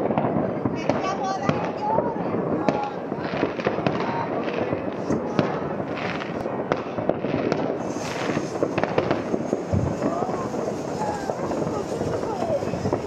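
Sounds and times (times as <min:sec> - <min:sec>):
fireworks crackling and banging: 0:00.0 - 0:13.0
loud firework bang: 0:00.0 - 0:13.0.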